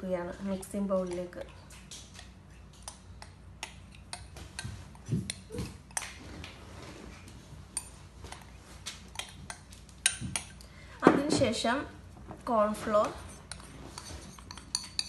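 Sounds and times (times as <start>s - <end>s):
spoon scraping glass bowl: 12.9s - 15.0s.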